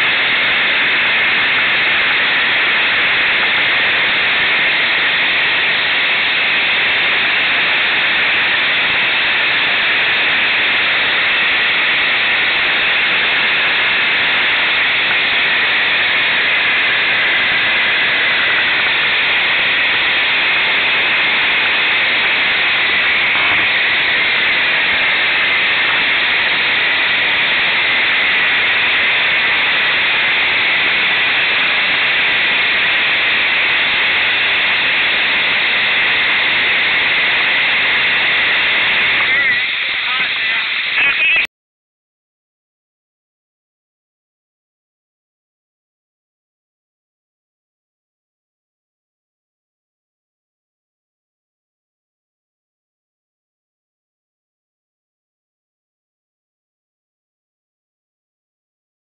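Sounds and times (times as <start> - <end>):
loud steady static hiss: 0.0 - 41.5.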